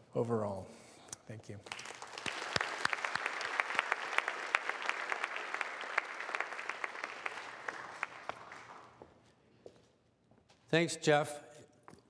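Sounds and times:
audience applauding: 1.6 - 9.1.

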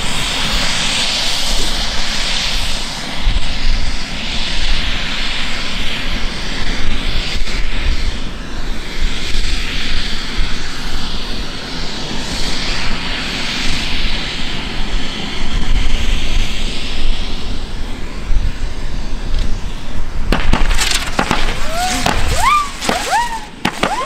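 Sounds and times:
firework spraying sparks hiss: 20.0 - 24.0
firework cracks: 20.3 - 24.0.

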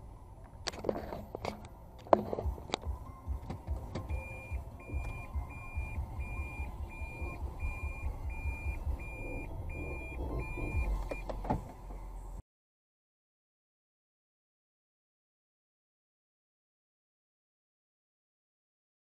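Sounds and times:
low steady rumble: 0.0 - 12.4
car warning chime beeping: 3.0 - 11.4.

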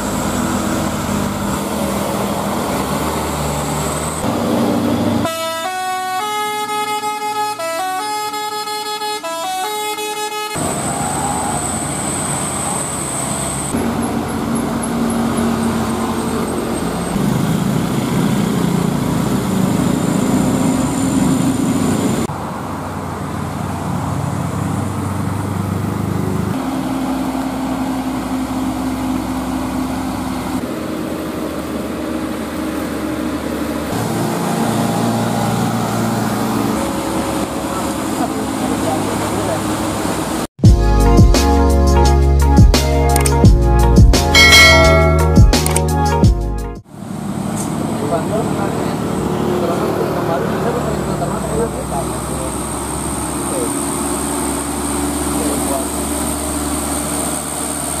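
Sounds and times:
diesel truck engines labouring: 0.0 - 58.0
musical horn playing tune: 5.2 - 10.6, 40.7 - 46.8.

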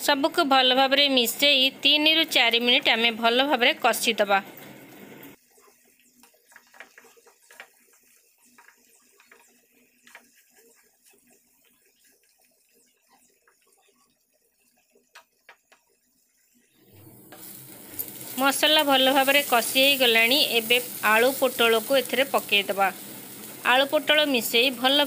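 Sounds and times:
wooden spatula scraping: 5.6 - 14.1.

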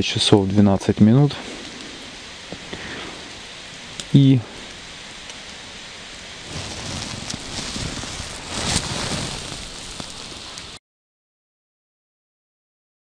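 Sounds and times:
light drizzling rain: 0.0 - 10.8
rustling and rumbling: 1.4 - 10.8.

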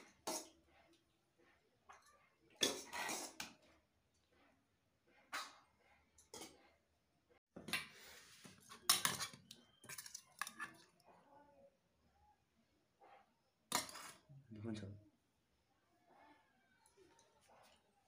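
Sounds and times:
spoon scraping steel plates: 1.9 - 3.5, 8.5 - 10.9, 13.7 - 14.3.

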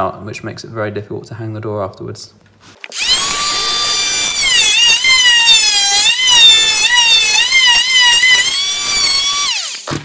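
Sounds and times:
oscillating multi-tool cutting wood: 2.9 - 10.0.

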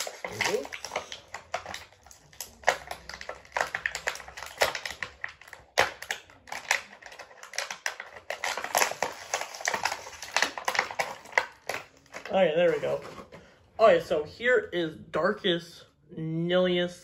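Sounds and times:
plastic packaging crackling: 0.0 - 13.4.

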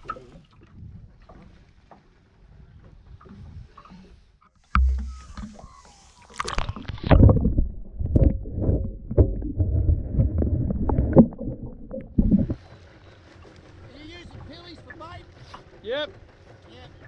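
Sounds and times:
gurgling rushing water underwater: 4.7 - 12.8.

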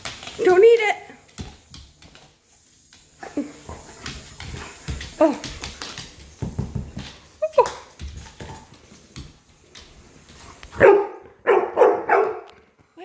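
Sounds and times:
clicks and knocks on floor: 0.0 - 0.6, 1.2 - 10.8
dog barking: 10.8 - 12.5.

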